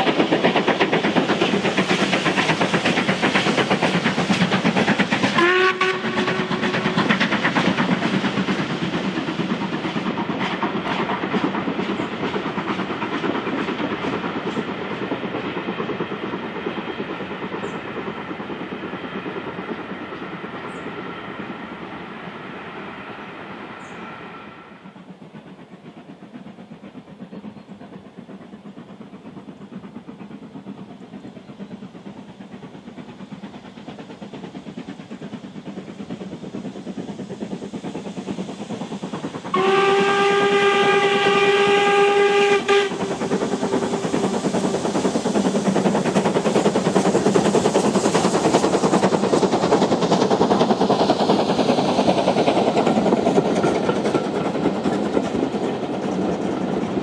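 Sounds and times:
steam locomotive exhaust: 0:00.0 - 0:57.0
steam whistle: 0:05.4 - 0:06.7, 0:23.8 - 0:24.8, 0:39.5 - 0:43.1.

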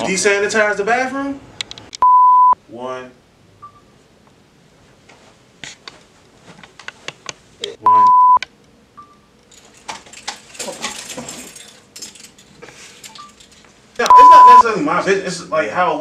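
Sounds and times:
electronic beep: 0:02.0 - 0:02.6, 0:07.9 - 0:08.4, 0:14.1 - 0:14.6
voice: 0:07.6 - 0:08.2, 0:14.0 - 0:16.0.

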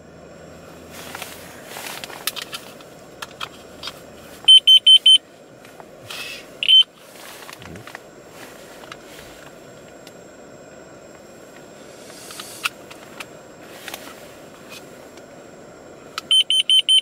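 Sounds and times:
rustling and handling clicks: 0:01.0 - 0:05.9
digital timer beeping: 0:04.5 - 0:05.2, 0:06.6 - 0:06.9, 0:16.3 - 0:17.0.

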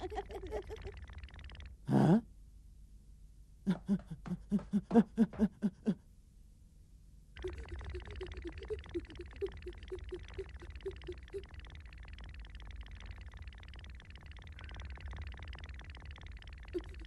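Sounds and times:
cartoon footsteps ticking: 0:03.7 - 0:05.7, 0:07.4 - 0:17.0
soft pitched blips: 0:07.4 - 0:17.0.

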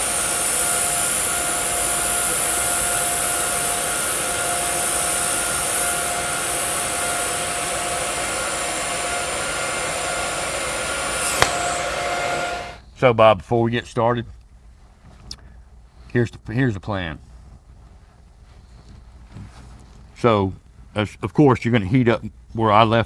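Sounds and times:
welding arc hissing: 0:00.0 - 0:12.8
sharp click of arc stopping: 0:11.0 - 0:12.8.

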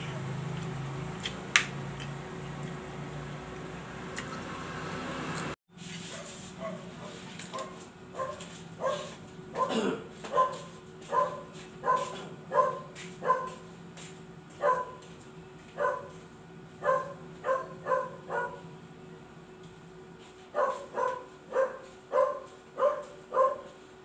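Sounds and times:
dog barking: 0:06.1 - 0:13.6, 0:14.6 - 0:15.0, 0:15.8 - 0:16.2, 0:16.8 - 0:18.6, 0:20.6 - 0:23.8.

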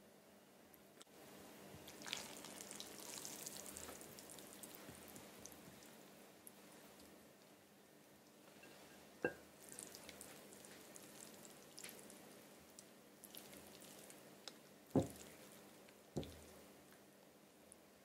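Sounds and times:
wet squishing of noodles: 0:01.8 - 0:07.2, 0:09.6 - 0:16.7.

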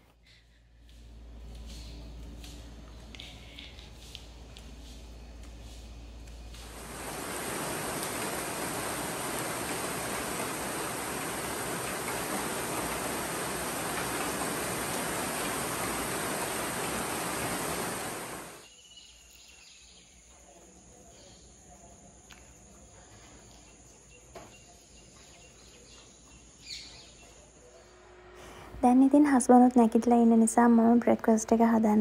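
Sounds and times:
steady rain falling: 0:06.2 - 0:18.6.

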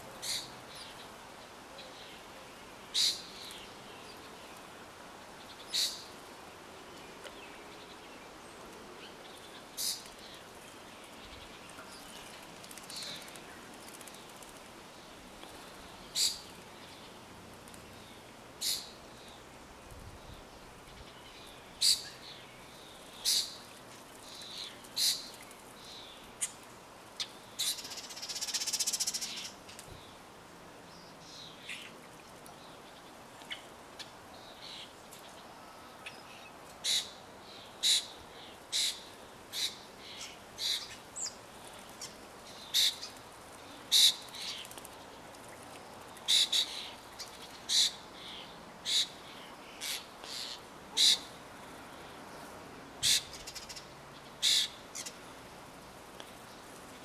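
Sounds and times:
birds chip calls: 0:00.2 - 0:01.1, 0:02.9 - 0:04.2, 0:05.4 - 0:06.1, 0:09.1 - 0:14.7, 0:15.5 - 0:18.0, 0:18.6 - 0:19.4, 0:20.8 - 0:30.0, 0:31.6 - 0:52.2, 0:53.0 - 0:55.3.

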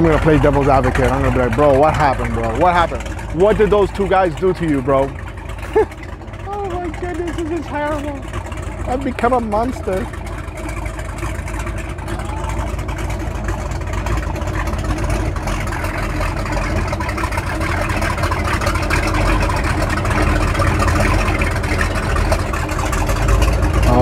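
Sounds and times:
outboard boat motor running: 0:00.0 - 0:24.0.

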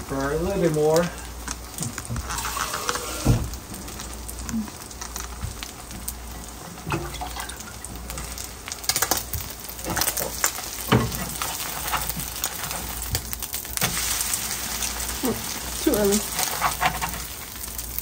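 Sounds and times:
pancake sizzling in oil: 0:00.0 - 0:18.0
water pouring into a pan: 0:02.2 - 0:04.4, 0:05.8 - 0:16.3
metal spatula scraping a pan: 0:09.9 - 0:13.0, 0:16.0 - 0:17.4.

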